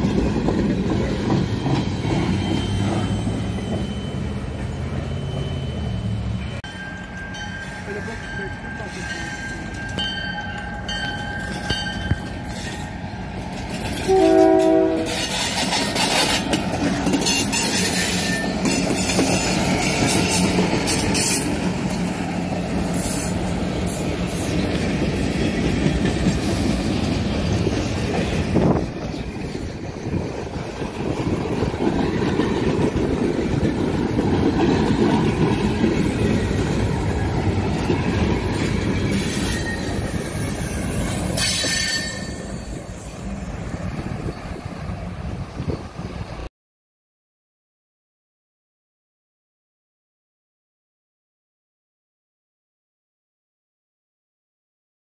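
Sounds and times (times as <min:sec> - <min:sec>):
diesel locomotives rumbling: 0:00.0 - 0:46.5
wheel squeal: 0:01.6 - 0:06.6, 0:39.1 - 0:43.2
crossing bell ringing: 0:01.6 - 0:15.6, 0:16.9 - 0:22.0, 0:32.4 - 0:43.1
train horn blast: 0:14.0 - 0:15.4.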